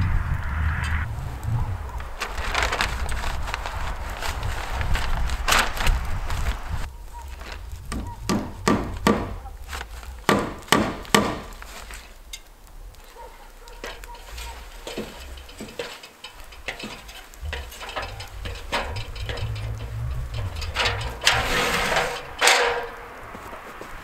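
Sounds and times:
boots clanking on metal rungs: 13.1s - 24.0s.

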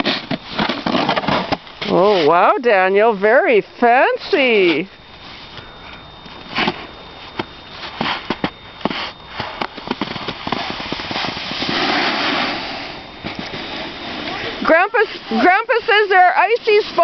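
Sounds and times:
snowboard scraping icy snow: 0.0s - 2.4s, 7.8s - 17.0s.

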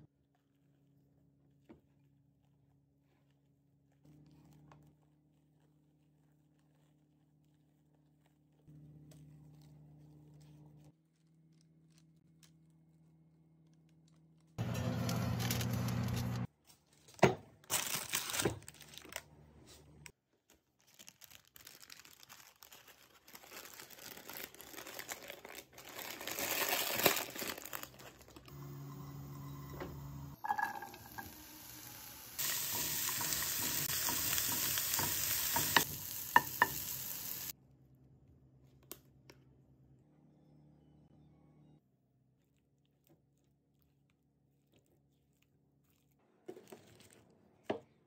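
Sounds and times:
paper and plastic wrap crinkling: 4.2s - 28.5s, 45.3s - 47.3s.

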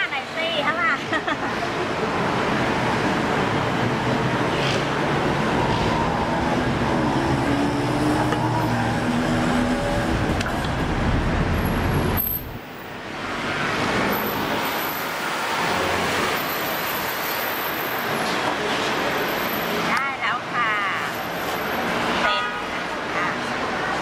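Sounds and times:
passing traffic: 0.0s - 24.0s
vehicle engine humming: 1.7s - 15.0s.

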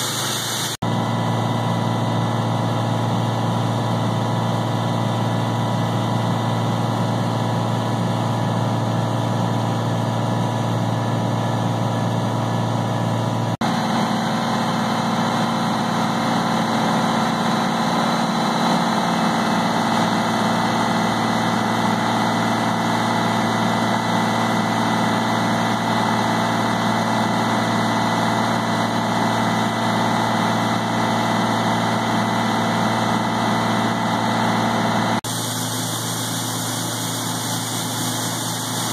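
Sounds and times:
grinder-mixer grinding feed: 0.0s - 0.8s, 12.7s - 38.9s
tractor engine running: 0.0s - 38.9s.

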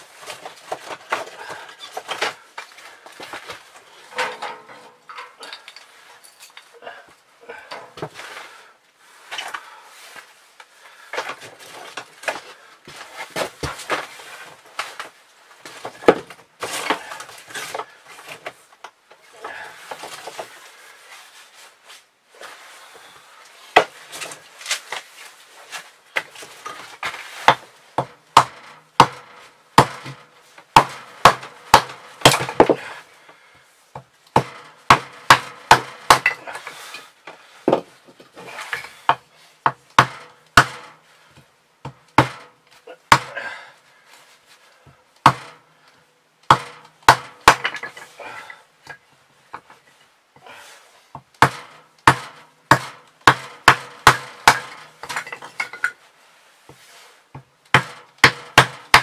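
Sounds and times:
hatchet splitting firewood: 14.8s - 18.5s, 26.1s - 33.0s, 34.0s - 37.1s, 37.7s - 41.0s, 41.8s - 42.5s, 43.1s - 43.6s, 45.2s - 45.6s, 46.5s - 49.0s, 51.4s - 55.9s, 57.4s - 59.0s.

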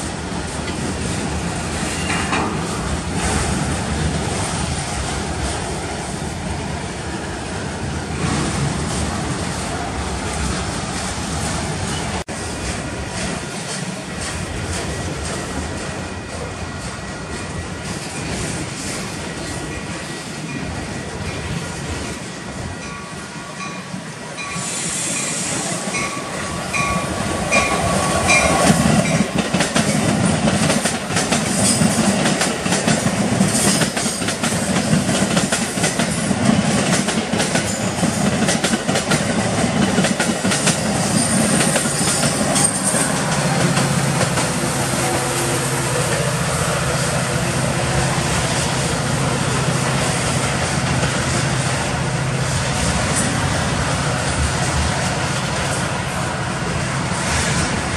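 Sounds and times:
train wheels clattering over rails: 0.0s - 5.8s, 24.6s - 56.0s
freight train rolling: 0.0s - 57.9s.

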